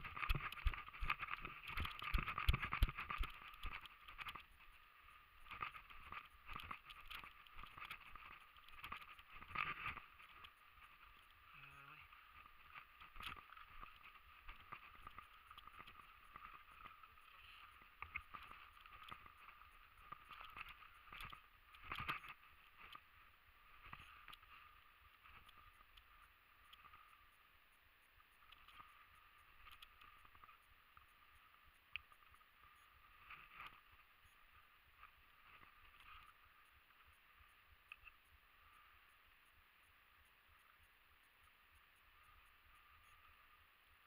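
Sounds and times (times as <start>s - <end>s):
small clicks and knocks: 0.0s - 4.6s, 5.4s - 11.4s, 12.4s - 23.1s, 23.8s - 27.1s, 28.4s - 31.3s.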